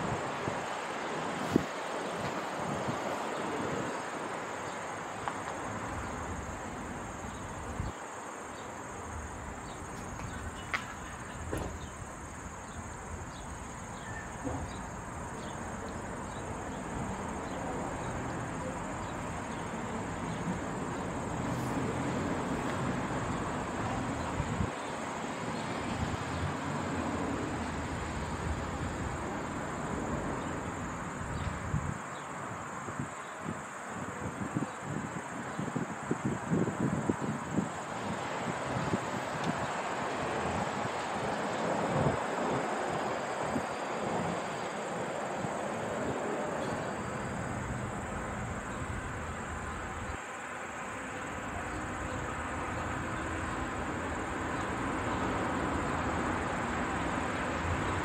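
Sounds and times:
wind gusting on microphone: 0.0s - 4.4s, 25.7s - 50.2s.

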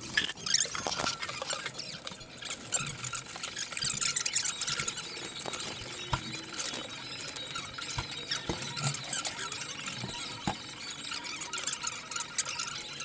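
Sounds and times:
paper bag rustling and crinkling: 4.8s - 7.4s.

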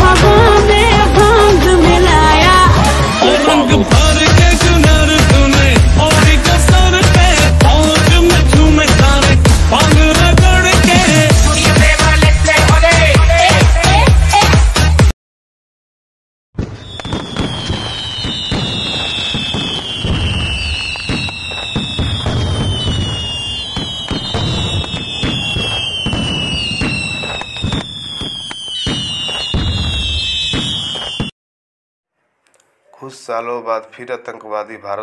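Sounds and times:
firecrackers crackling: 16.6s - 31.3s
falling firework whistles: 16.6s - 31.4s.

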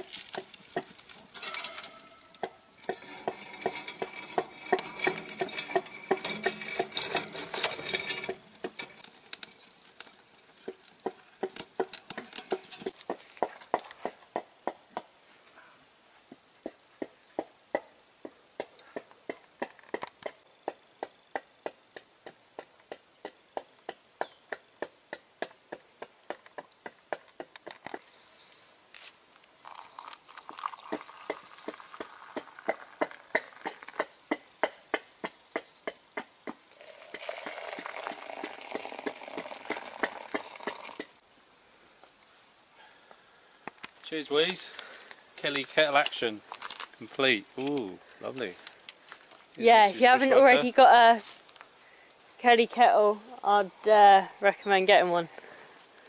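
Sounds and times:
twigs snapping and crackling: 0.0s - 2.6s, 8.3s - 13.4s, 43.7s - 49.6s.

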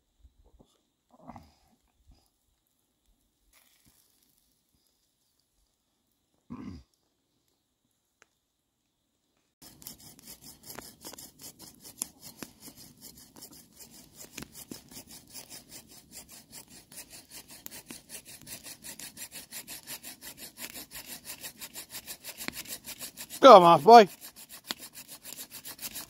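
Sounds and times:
hand saw cutting log: 9.6s - 26.0s.

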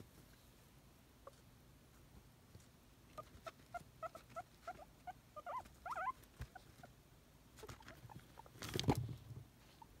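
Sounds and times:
guinea pig squeaking: 3.1s - 7.0s, 7.6s - 9.0s.

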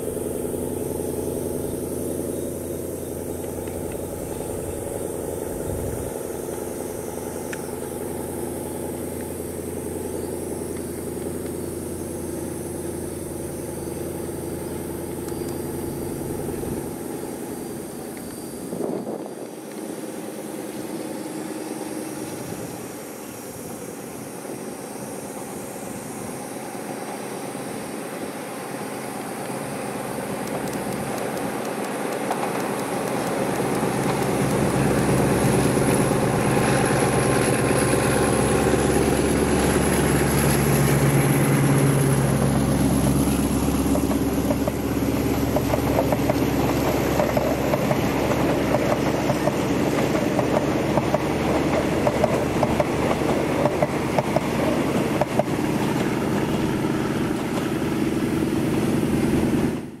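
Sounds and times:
locomotive engine drone: 0.0s - 60.0s
train wheels clattering over rail joints: 30.2s - 59.0s.

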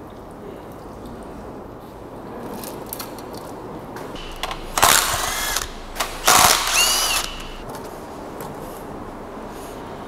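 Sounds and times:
impact wrench whine: 4.2s - 7.6s.

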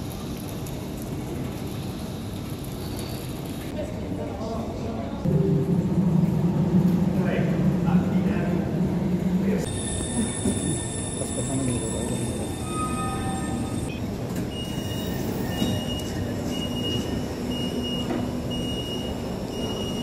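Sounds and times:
train braking with high whine: 9.6s - 20.0s.

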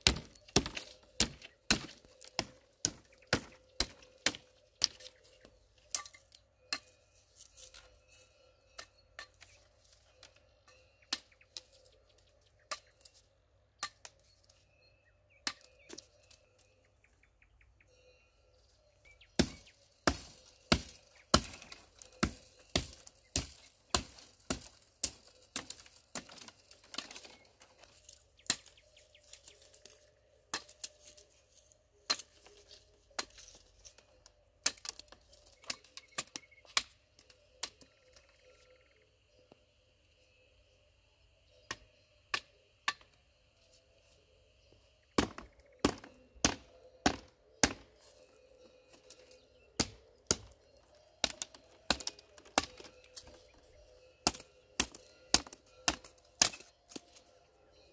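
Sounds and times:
hatchet chopping wood: 0.0s - 5.1s, 19.4s - 27.4s, 30.5s - 30.8s, 45.2s - 47.9s, 49.8s - 50.6s, 51.2s - 53.4s, 54.2s - 57.2s.

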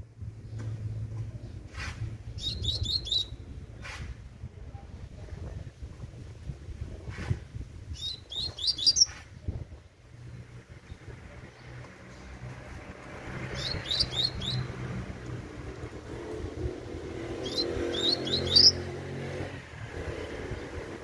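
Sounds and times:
bird singing high falling notes: 17.4s - 18.9s.

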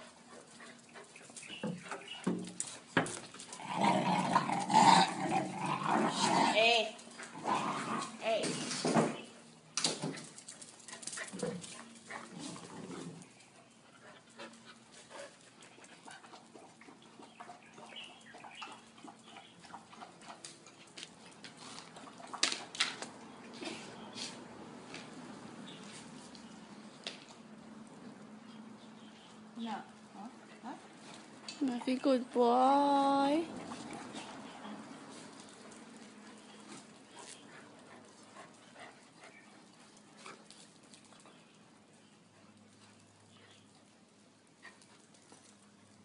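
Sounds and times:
dogs growling: 3.3s - 8.2s, 11.1s - 13.4s
feet and paws on gravel: 10.1s - 28.1s, 30.2s - 46.0s.

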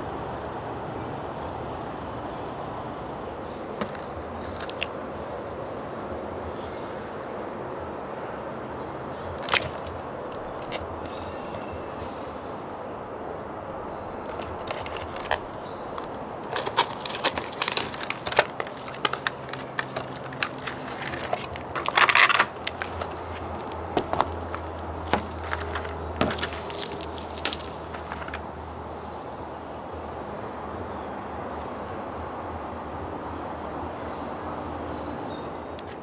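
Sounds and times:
cardboard and plastic crinkling: 3.8s - 5.0s, 9.4s - 11.3s, 14.2s - 29.1s
packaging rustling: 3.8s - 5.0s, 9.4s - 11.2s, 14.2s - 29.0s.

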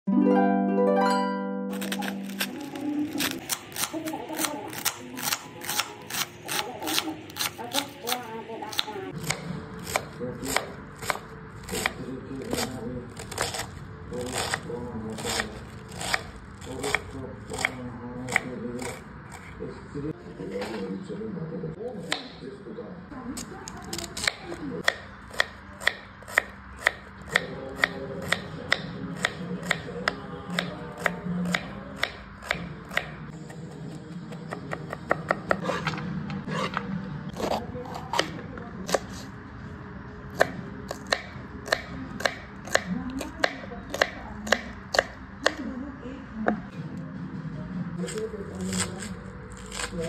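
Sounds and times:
knife chopping on board: 1.8s - 19.5s, 23.9s - 33.7s, 34.3s - 39.2s, 40.4s - 45.6s
knife scraping board: 1.8s - 19.6s, 20.5s - 20.9s, 35.5s - 39.3s.

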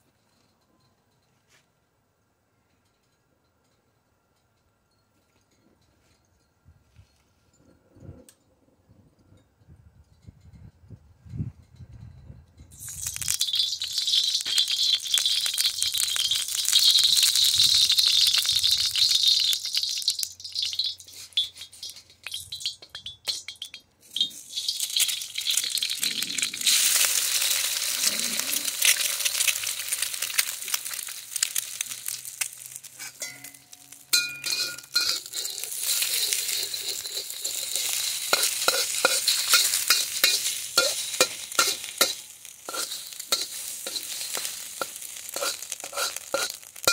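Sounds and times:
egg sizzling in oil: 12.7s - 46.9s
metal spatula scraping wok: 18.4s - 23.4s, 24.1s - 46.9s.

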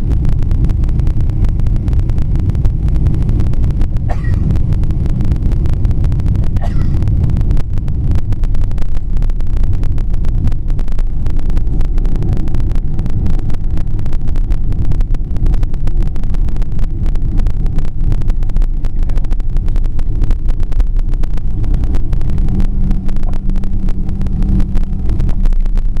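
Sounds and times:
jet engines and wheels rumbling: 0.0s - 26.0s
rapid crackling: 0.0s - 26.0s
steady low hum: 0.0s - 26.0s.

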